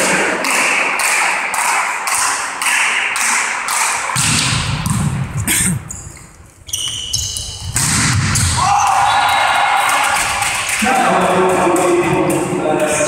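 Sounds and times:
spectators clapping in rhythm: 0.0s - 4.2s, 9.2s - 13.0s.

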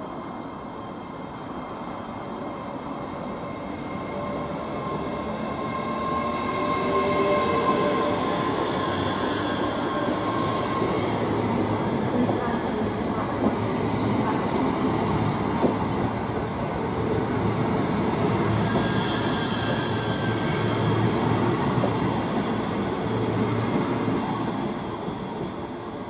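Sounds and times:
train wheels rumbling on rail: 4.5s - 26.0s.

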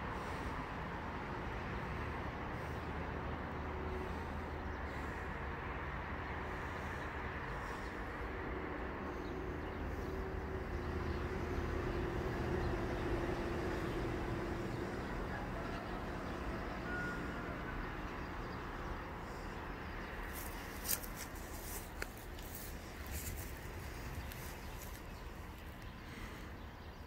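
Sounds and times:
low engine hum: 0.0s - 27.0s
outdoor background rumble: 0.0s - 27.0s.

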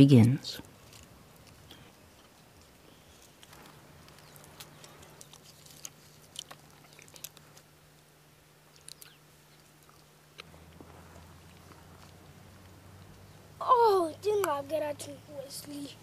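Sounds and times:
low hum: 0.0s - 14.2s
chewing: 0.6s - 13.2s
foil wrappers crinkling: 0.7s - 7.7s.

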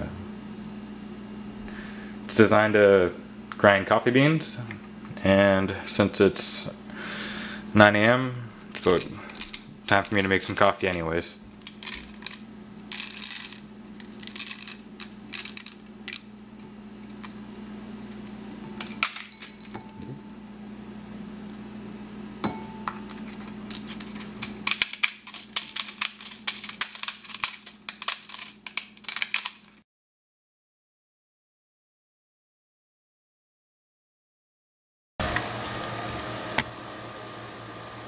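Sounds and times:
hand coffee grinder crunching beans: 8.6s - 17.5s, 22.9s - 29.8s.

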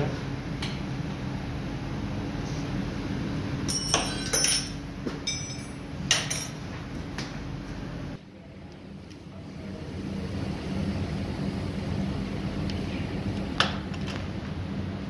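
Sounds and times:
steady low hum: 0.0s - 15.0s
metallic clinks of tools: 3.7s - 6.6s.

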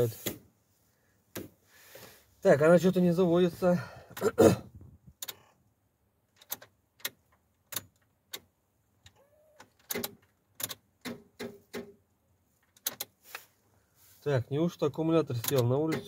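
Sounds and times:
truck ignition clicks: 5.1s - 5.6s, 6.3s - 11.9s, 15.3s - 16.0s.

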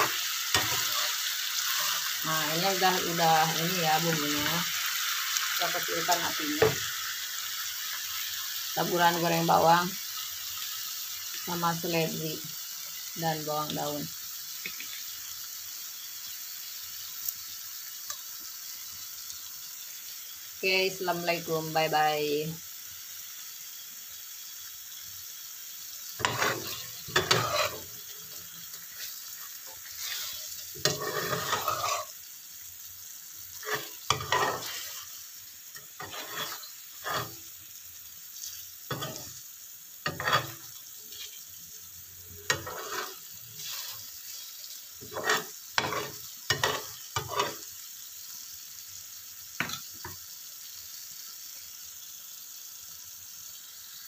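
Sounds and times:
spatula scraping a wok: 0.0s - 4.6s, 25.8s - 32.3s, 33.5s - 37.6s, 38.3s - 47.8s
sauce sizzling: 0.0s - 54.0s.

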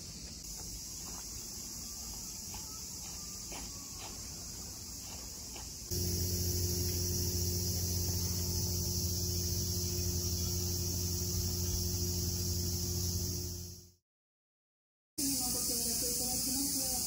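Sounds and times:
insects droning: 0.0s - 14.0s, 15.2s - 17.0s
steady low hum: 5.9s - 13.9s.

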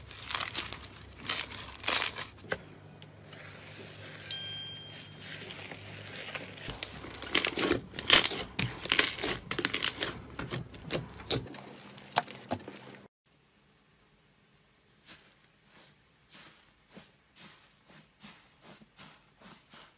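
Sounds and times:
slime sticky crackles: 0.0s - 2.4s.

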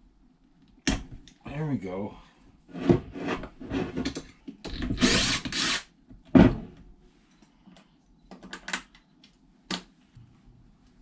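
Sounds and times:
heavy thump on workbench: 6.3s - 6.7s.

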